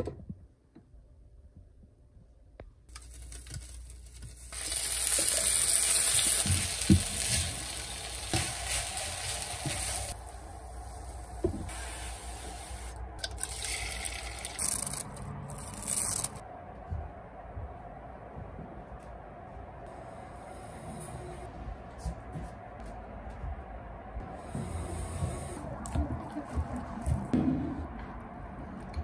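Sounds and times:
rice sizzling in a frying pan: 3.0s - 10.2s.

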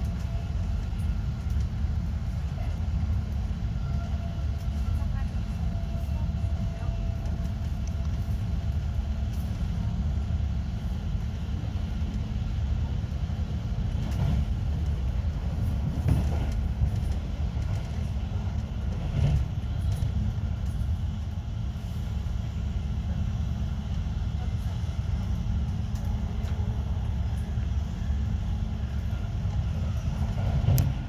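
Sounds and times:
train wheels rumbling on track: 0.0s - 31.0s
train knocks: 15.6s - 18.0s.

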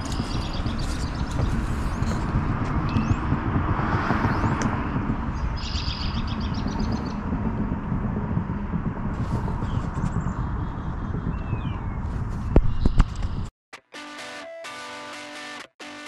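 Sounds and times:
birds chirping: 0.0s - 3.4s, 4.0s - 7.3s, 9.4s - 13.5s
low rumble: 0.0s - 13.5s.

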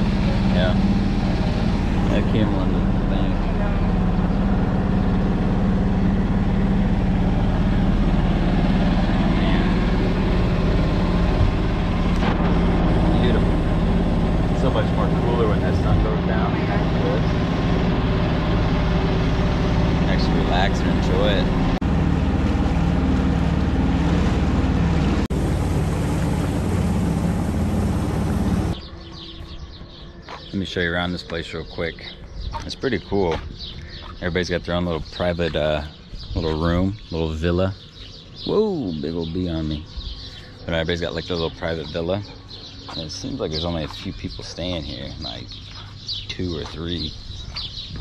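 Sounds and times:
engine running steadily: 0.0s - 48.0s
rushing water: 21.8s - 28.8s.

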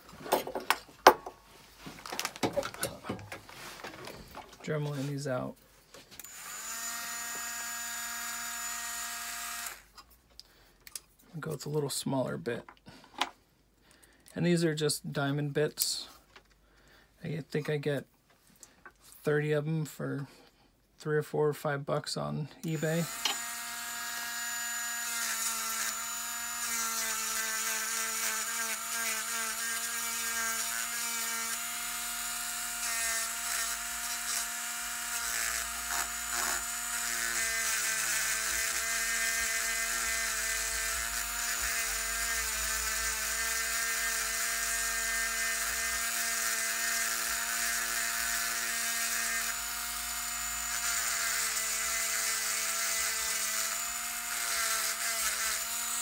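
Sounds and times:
rotary tool motor whine: 6.2s - 9.9s, 22.6s - 56.0s.

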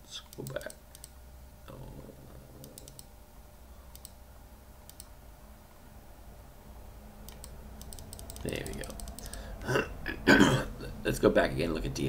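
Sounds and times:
low steady hum: 0.0s - 12.0s
computer mouse clicks: 0.2s - 1.2s, 2.6s - 3.1s, 3.9s - 4.2s, 4.8s - 5.2s, 7.3s - 9.5s.

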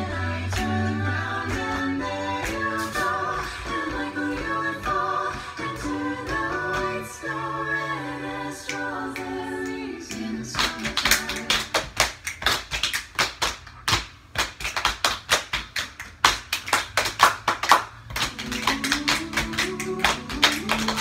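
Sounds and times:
people clapping: 0.0s - 21.0s.

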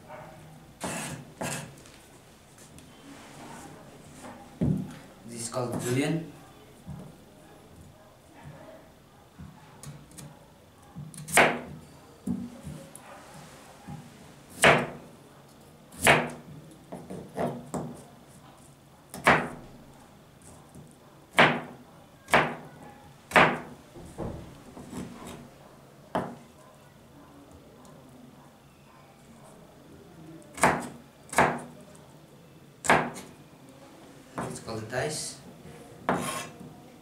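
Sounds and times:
knife chopping on plastic board: 11.0s - 12.5s, 15.9s - 18.0s, 19.1s - 19.6s, 21.3s - 22.6s, 23.3s - 23.8s, 32.8s - 33.3s, 36.1s - 36.5s.

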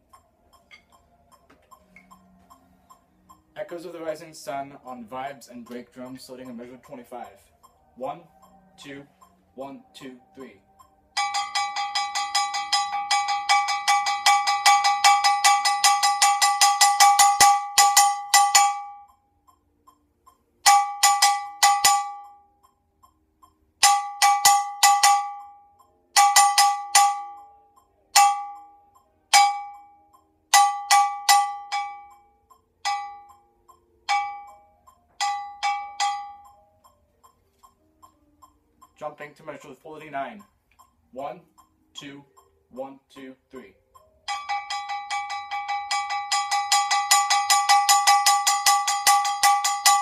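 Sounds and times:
mallets striking brake drum: 11.2s - 19.2s, 20.6s - 22.4s, 23.8s - 27.5s, 28.1s - 32.2s, 32.8s - 33.4s, 34.1s - 36.6s, 44.3s - 50.0s.

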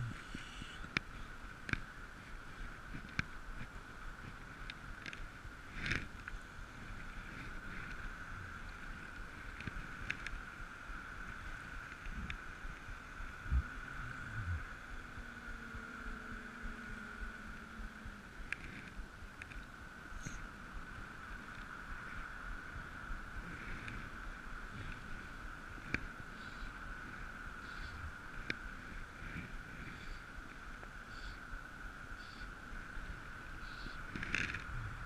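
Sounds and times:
high-pitched hum: 0.0s - 1.2s, 12.1s - 19.1s.

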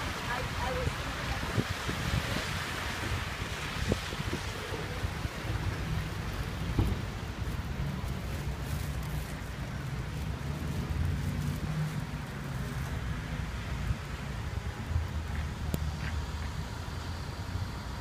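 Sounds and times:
low rumble of traffic: 0.0s - 18.0s
wind buffeting microphone: 0.3s - 12.0s.

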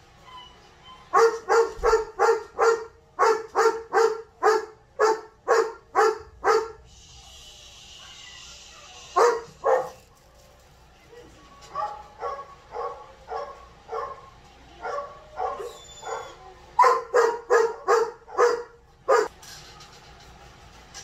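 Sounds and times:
dog barking deeply: 1.2s - 6.8s, 11.8s - 19.3s.

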